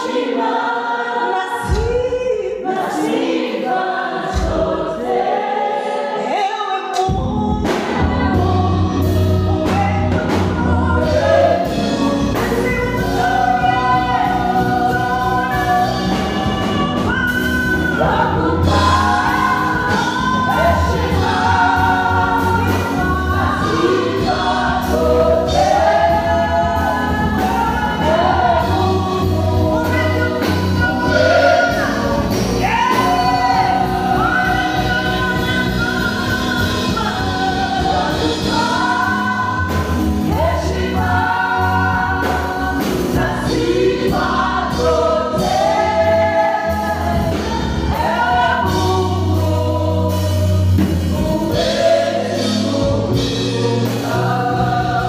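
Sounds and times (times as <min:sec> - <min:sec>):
worship team singing gospel song: 0:00.0 - 0:55.0
instrumental accompaniment with bass: 0:07.0 - 0:55.0.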